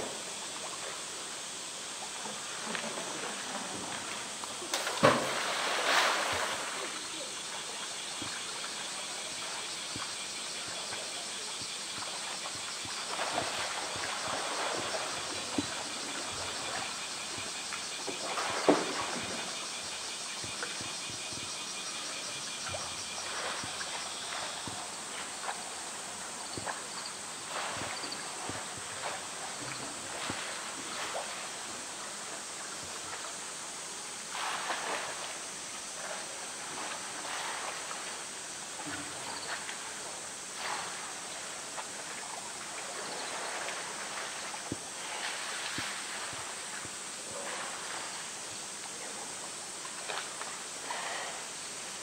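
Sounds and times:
steady high hiss: 0.0 - 52.0
bear splashing in water: 4.7 - 7.0.

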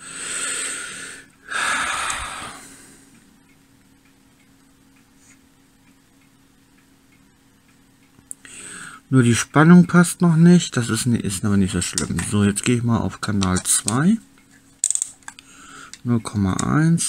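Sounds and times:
faint steady hum: 0.0 - 17.0
heavy breaths: 15.4 - 16.0.

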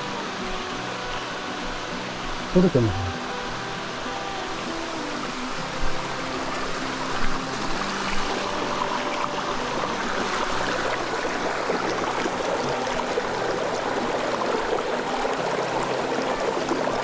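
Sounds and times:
stream running over small waterfalls: 0.0 - 17.0.

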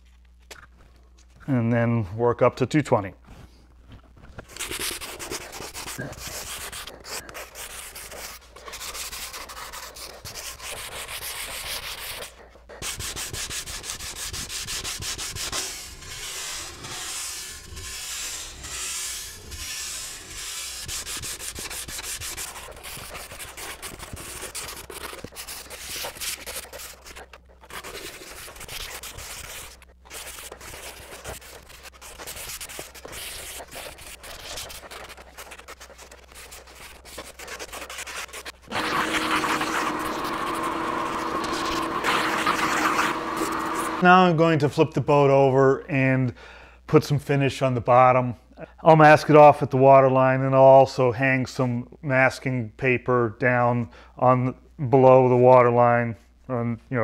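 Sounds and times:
sandpaper rubbing on wood: 4.5 - 44.1.

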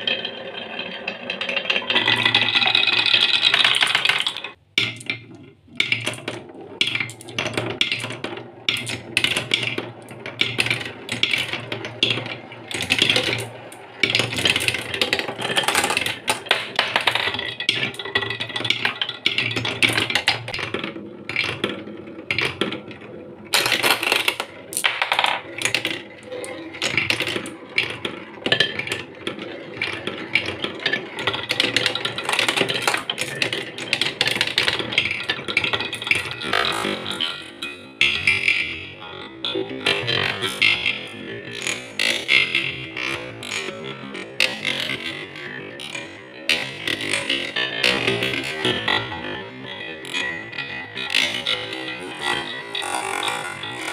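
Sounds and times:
marbles clicking and knocking: 0.0 - 53.9
marbles rolling on wooden track: 0.0 - 53.9.

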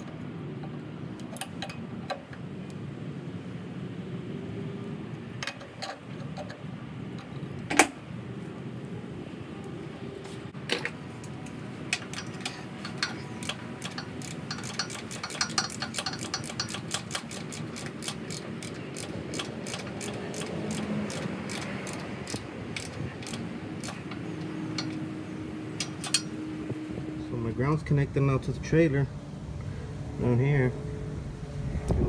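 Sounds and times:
ratchet wrench clicking: 11.9 - 25.0, 25.8 - 26.4.

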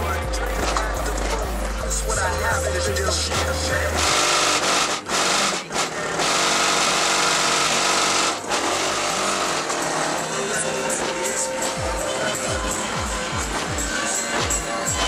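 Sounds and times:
loud subwoofer bass: 0.0 - 5.4, 11.8 - 15.0.

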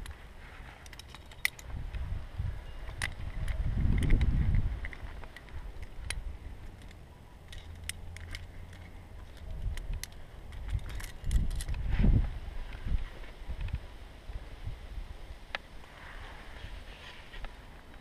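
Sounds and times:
carabiners clinking: 0.0 - 1.8, 2.6 - 11.8
wind rumbling on microphone: 0.0 - 6.9, 8.1 - 18.0.

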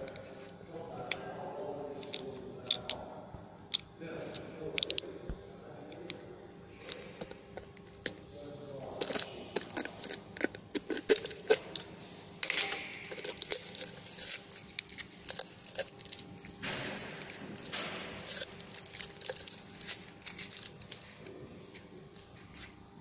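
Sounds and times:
foil tearing and crinkling: 12.4 - 21.2.

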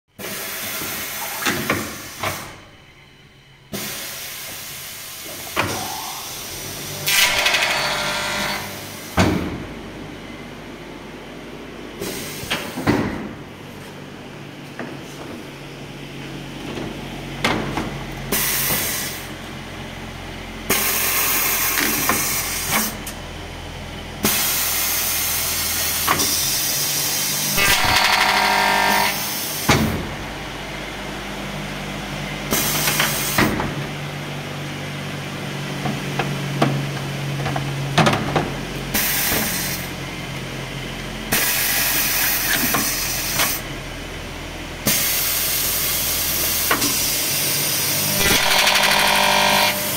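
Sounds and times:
compressed air hissing: 0.2 - 2.6, 3.7 - 6.9, 12.0 - 12.9, 18.3 - 19.4, 20.7 - 23.0, 24.2 - 27.6
pneumatic clamps clunking: 0.2 - 2.7, 3.7 - 6.4, 7.0 - 9.7, 12.0 - 13.4, 16.6 - 19.3, 20.7 - 23.2, 24.2 - 30.2, 32.5 - 33.9, 35.8 - 39.9, 41.3 - 43.6, 44.8 - 49.2
motor hum: 19.2 - 44.8, 45.7 - 49.9
cutters spinning whine: 25.4 - 29.6, 46.3 - 49.9.

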